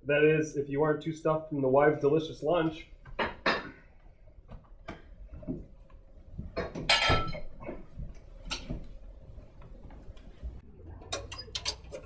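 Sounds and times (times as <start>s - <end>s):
chairs knocking against table: 3.1s - 3.8s, 6.4s - 9.0s.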